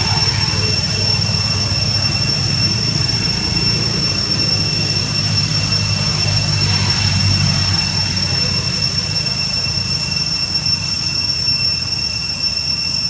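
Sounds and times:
low rumble: 0:00.0 - 0:09.4
high-pitched insect drone: 0:00.0 - 0:13.0.

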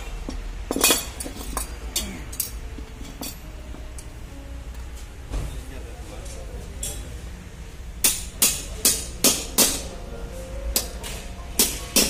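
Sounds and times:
hammer striking metal: 0:08.0 - 0:12.0.

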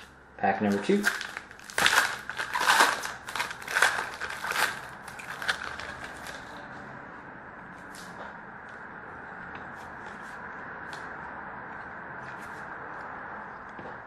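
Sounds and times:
card pack wrapper tearing: 0:00.7 - 0:06.5.

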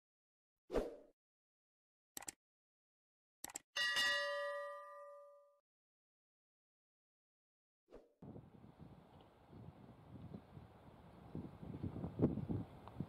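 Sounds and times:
quick clicks: 0:02.2 - 0:02.4, 0:03.4 - 0:03.7
notification bell ding: 0:03.8 - 0:05.6.

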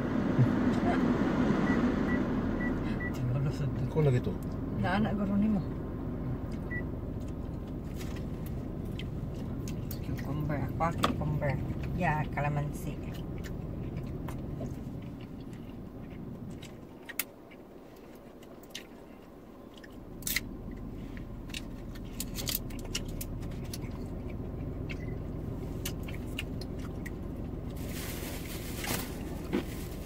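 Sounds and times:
car cabin hum: 0:00.0 - 0:30.0
person chewing: 0:06.5 - 0:10.1, 0:13.1 - 0:27.8
hand rustling near microphone: 0:27.7 - 0:30.0.

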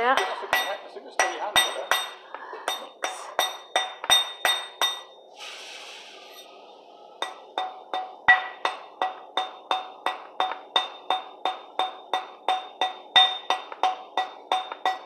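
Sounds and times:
soft hiss: 0:05.2 - 0:07.8
metallic tapping on brass: 0:07.2 - 0:15.0.

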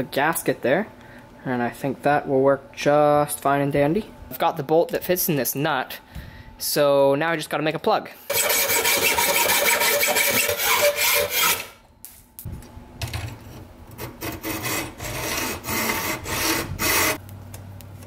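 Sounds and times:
hacksaw cutting metal: 0:08.3 - 0:11.8, 0:14.0 - 0:17.2.

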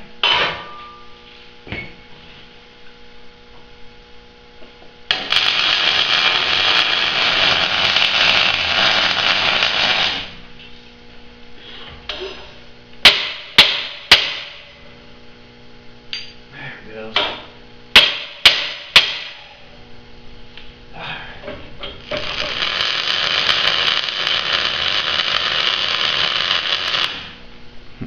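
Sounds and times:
low electrical hum: 0:00.0 - 0:28.0
welder crackling hiss: 0:05.1 - 0:10.4, 0:21.9 - 0:27.4.

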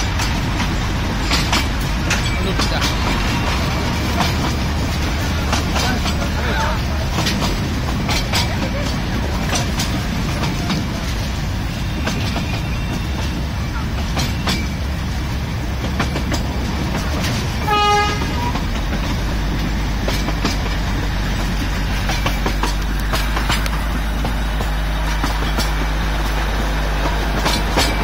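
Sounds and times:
train rumbling: 0:00.0 - 0:28.0
wheels and couplings clicking: 0:00.0 - 0:28.0
train horn toot: 0:17.6 - 0:18.6.

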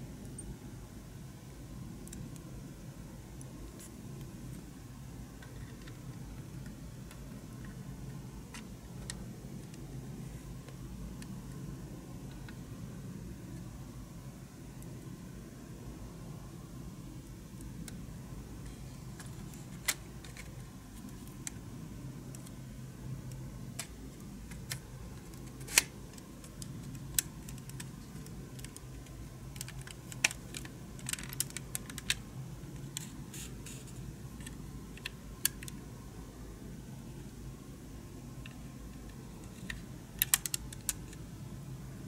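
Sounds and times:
steady low hum: 0:00.0 - 0:42.0
small plastic parts clicking: 0:23.3 - 0:32.2, 0:38.4 - 0:41.2.

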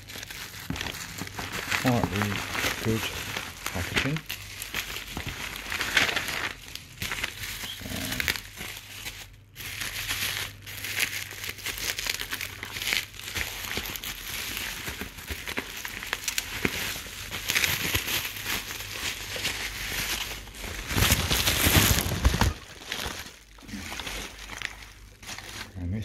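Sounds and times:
bubble wrap crinkling and crackling: 0:00.0 - 0:26.0.

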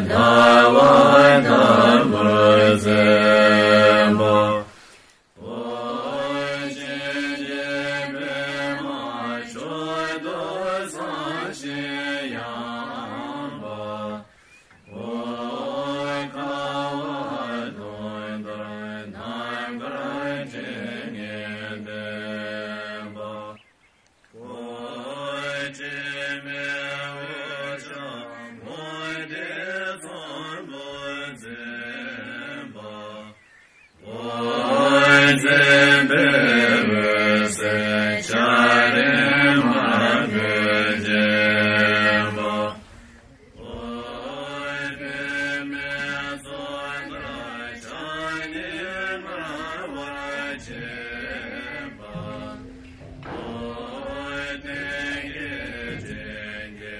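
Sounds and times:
person chanting mantra: 0:00.0 - 0:04.8, 0:05.4 - 0:14.3, 0:14.9 - 0:23.6, 0:24.4 - 0:33.4, 0:34.0 - 0:56.9
low steady drone: 0:43.6 - 0:56.9.

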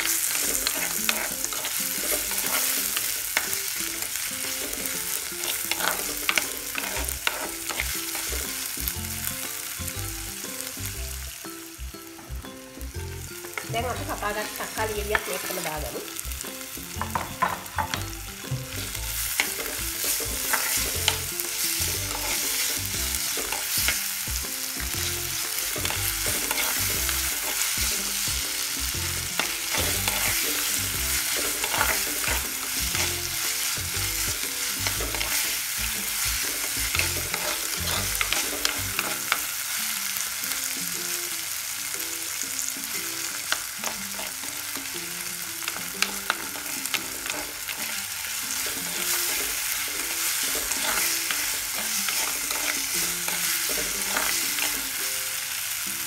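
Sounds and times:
vegetables sizzling in hot oil: 0:00.0 - 0:56.0
metal spoon scraping a pot: 0:37.0 - 0:39.2.

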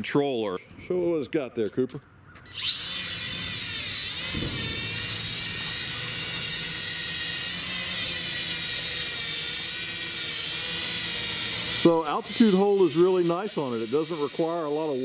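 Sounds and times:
drone propellers whining: 0:02.2 - 0:15.0.

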